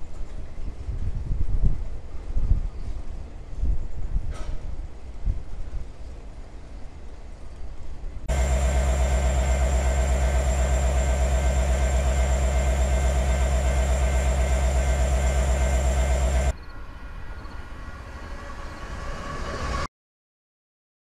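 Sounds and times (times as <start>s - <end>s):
locomotive engine rumbling: 8.3s - 16.5s
distant freight train approaching: 8.3s - 19.9s.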